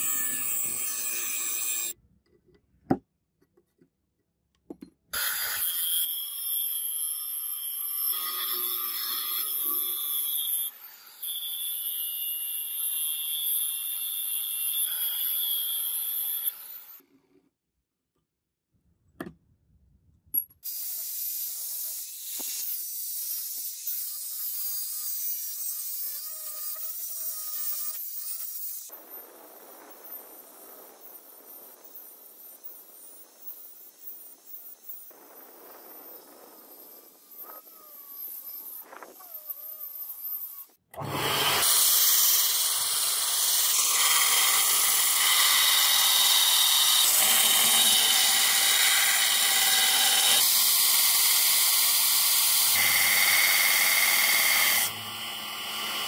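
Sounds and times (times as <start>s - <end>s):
angle grinder cutting steel: 0.0s - 2.0s, 5.2s - 17.1s, 20.7s - 56.0s.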